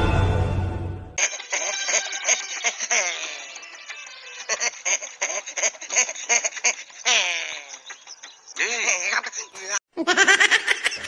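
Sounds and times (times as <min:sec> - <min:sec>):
film soundtrack music: 0:00.0 - 0:07.0.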